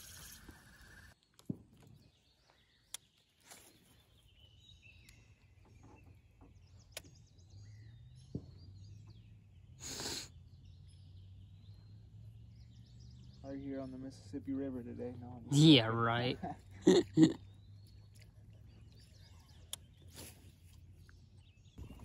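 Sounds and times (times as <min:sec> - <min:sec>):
faint birdsong: 0:00.0 - 0:22.0.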